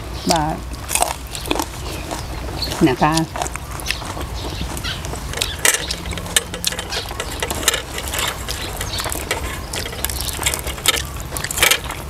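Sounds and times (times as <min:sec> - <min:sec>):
steady low hum: 0:00.0 - 0:12.0
kitchen utensils clicking and scraping: 0:05.2 - 0:12.0.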